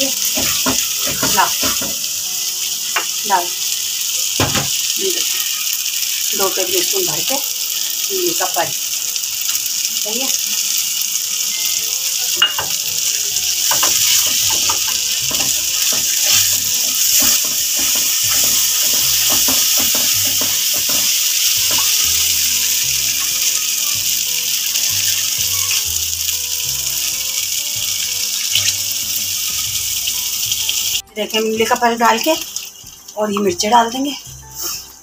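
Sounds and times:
paste sizzling in hot oil: 0.0s - 35.0s
spatula scraping and tapping pan: 13.6s - 22.1s.

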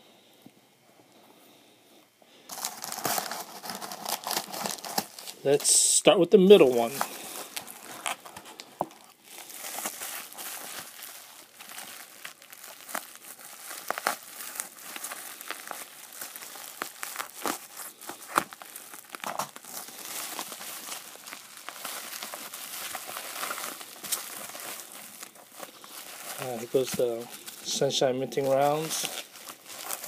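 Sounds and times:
bubble wrap crinkling: 2.5s - 30.0s
bubble wrap snap: 7.0s - 27.6s.

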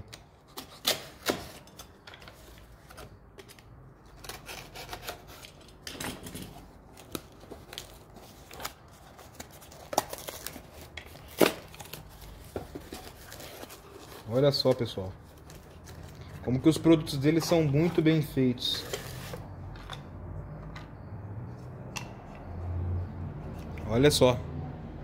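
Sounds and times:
packaging rustling: 6.5s - 19.6s.

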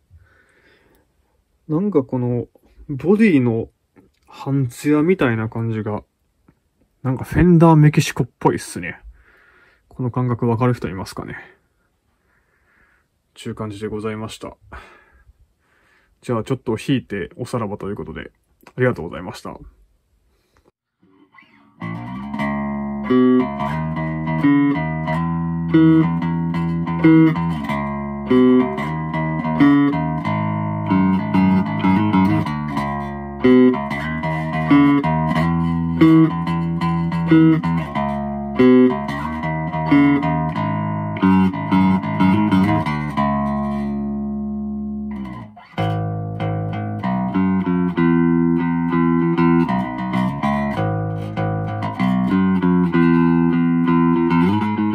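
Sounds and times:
electric bass played fingerstyle: 2.0s - 9.5s, 21.0s - 54.9s.

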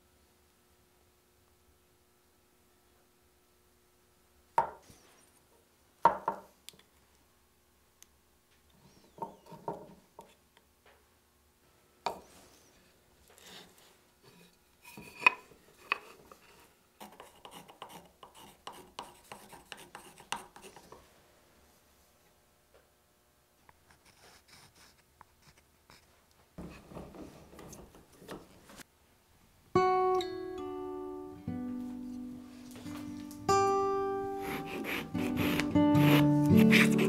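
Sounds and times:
sharp knocks on wood: 4.6s - 4.8s, 6.1s - 6.5s
knife shaving wood: 15.8s - 21.0s, 34.4s - 37.0s.

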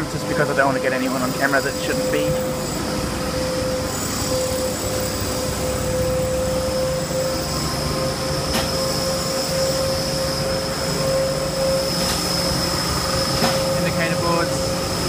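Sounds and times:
mechanical hum with high whine: 0.0s - 15.0s.

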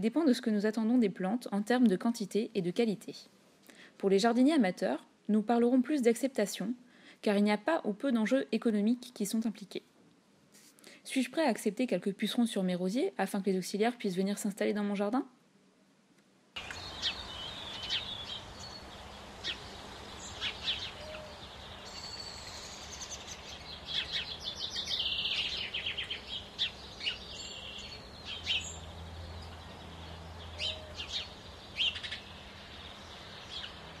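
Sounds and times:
outdoor background hush: 0.0s - 34.0s
birds chirping and trilling: 16.6s - 34.0s.

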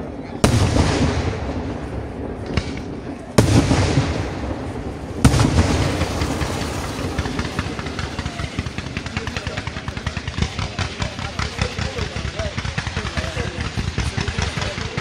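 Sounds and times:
firecrackers popping: 0.0s - 15.0s
firework bang: 0.4s - 15.0s.

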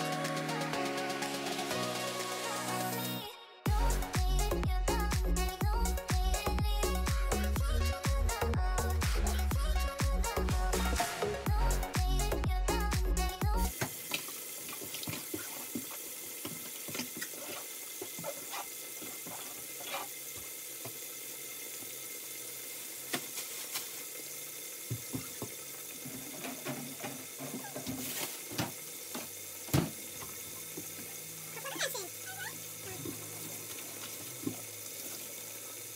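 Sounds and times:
background music: 0.0s - 13.7s
running water: 0.0s - 35.9s.

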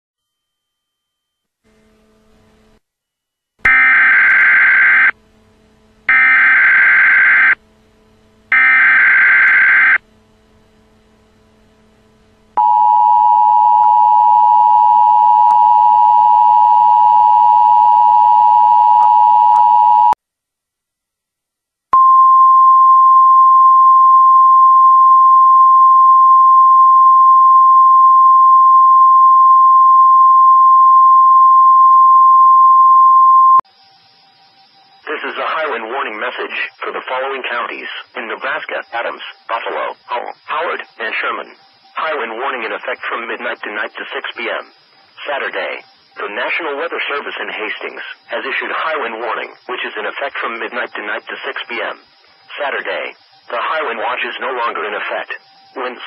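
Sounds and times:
single-pitch alarm tone: 3.7s - 5.2s, 6.1s - 7.6s, 8.5s - 10.0s, 12.6s - 20.2s, 22.0s - 35.0s
data bursts: 33.5s - 56.0s.

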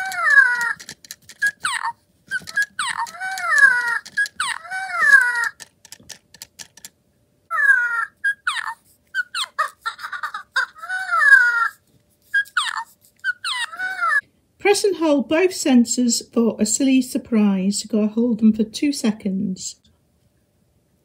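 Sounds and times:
toy squeaky coos and chirps: 0.0s - 5.7s, 7.5s - 14.2s.

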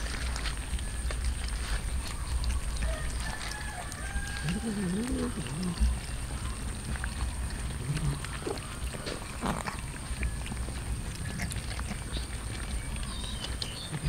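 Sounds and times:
cats chewing and smacking: 0.0s - 14.0s
cat vocalization: 4.3s - 14.0s.

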